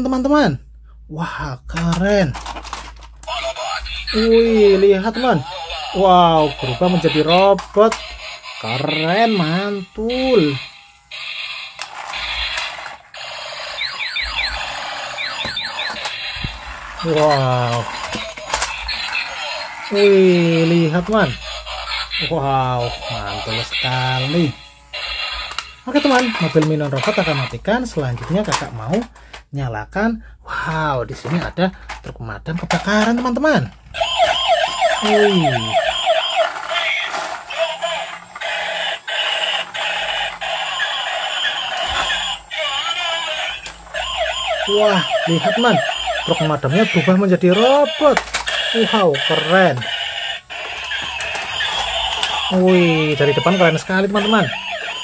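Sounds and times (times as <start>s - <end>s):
toy electronic tune: 3.2s - 27.6s, 34.0s - 55.0s
buzzy electronic tune: 43.9s - 55.0s.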